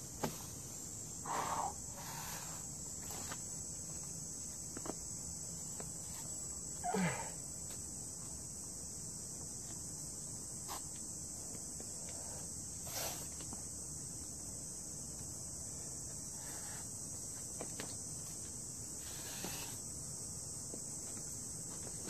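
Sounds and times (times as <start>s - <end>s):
insect chorus droning: 0.0s - 22.0s
climber grunting: 6.8s - 7.4s.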